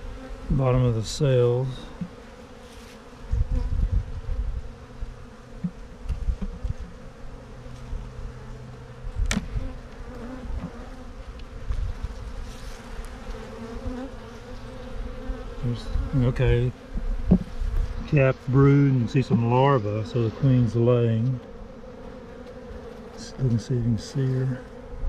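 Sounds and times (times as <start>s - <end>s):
honeybees humming: 0.0s - 25.0s
hive tool knocking wooden frame: 9.2s - 9.6s, 16.9s - 17.5s.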